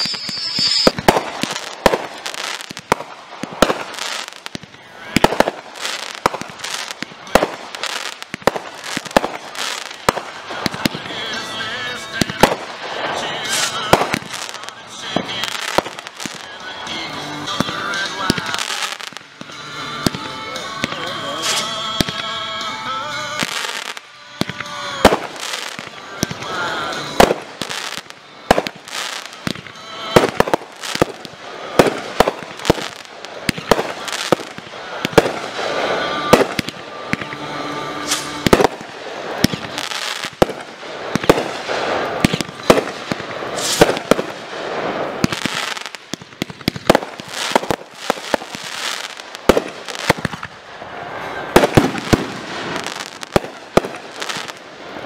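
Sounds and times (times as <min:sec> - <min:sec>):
firework shell bursts: 0:00.0 - 0:04.6, 0:23.4 - 0:50.6
continuous din: 0:00.0 - 0:55.0.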